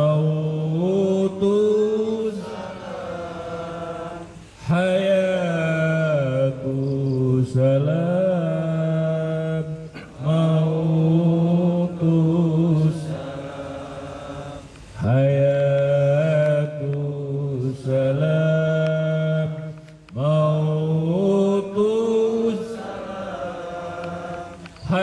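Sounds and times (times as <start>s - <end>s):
man chanting into microphone: 0.0s - 22.8s.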